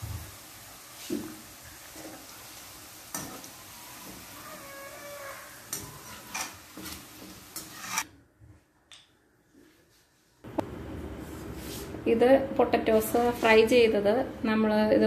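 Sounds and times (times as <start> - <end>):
fries sizzling in hot oil: 0.0 - 8.0
metal utensils scraping a pan: 5.1 - 8.1.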